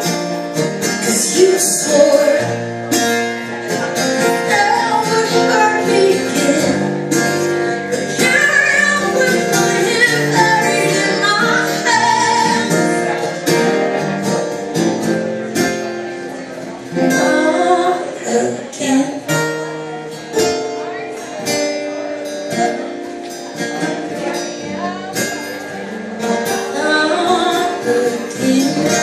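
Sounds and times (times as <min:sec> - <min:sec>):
acoustic guitars strummed: 0:00.0 - 0:29.0
woman singing into microphone: 0:00.9 - 0:02.7, 0:04.2 - 0:13.3, 0:16.9 - 0:19.6, 0:26.6 - 0:29.0.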